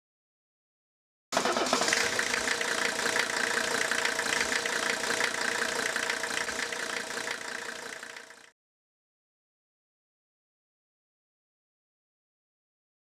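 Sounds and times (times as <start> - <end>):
engine idling with knocking clatter: 1.4 - 8.5.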